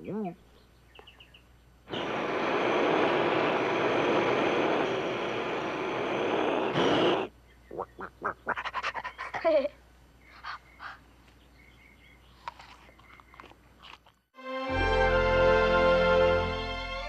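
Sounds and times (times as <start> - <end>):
roar of flame: 1.9 - 7.3.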